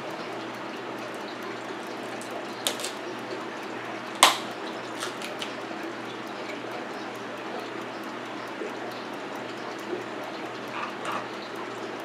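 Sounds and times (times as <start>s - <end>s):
crab shell cracking: 2.2s - 3.0s, 4.1s - 5.6s.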